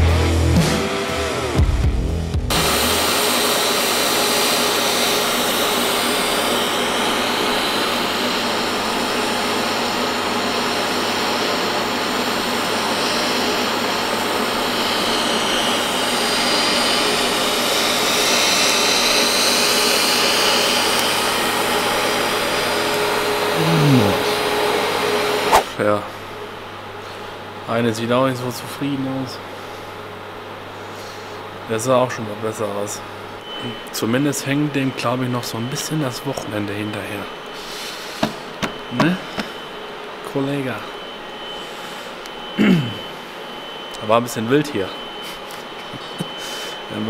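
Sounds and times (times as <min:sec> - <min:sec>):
welding arc hissing and humming: 0:02.5 - 0:25.7.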